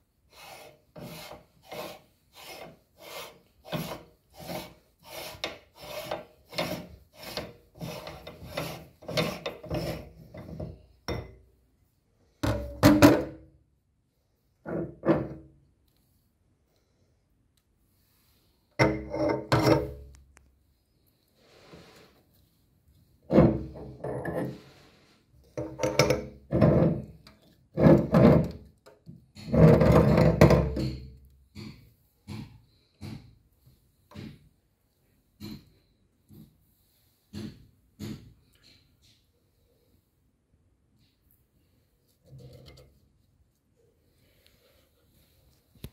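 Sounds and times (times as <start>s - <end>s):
threads scraping: 0.3s - 10.2s.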